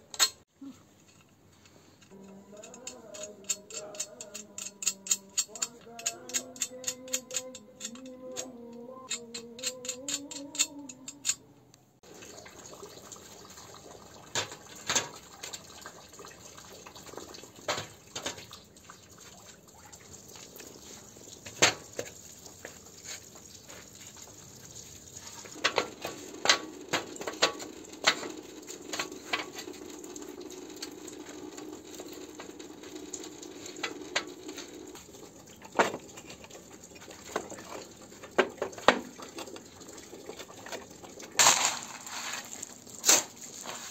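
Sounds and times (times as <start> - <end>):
scraping and shuffling: 41.4 - 43.9.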